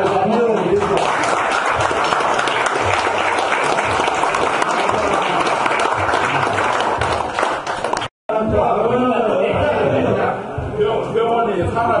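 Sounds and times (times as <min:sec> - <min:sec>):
people applauding: 0:00.0 - 0:08.1.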